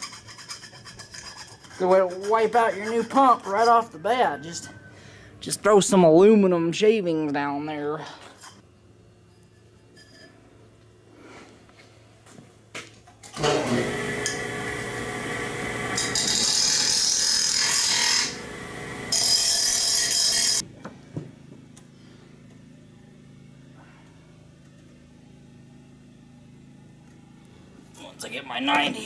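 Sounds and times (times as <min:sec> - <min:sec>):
chop saw cutting metal tubing: 0:13.4 - 0:20.6.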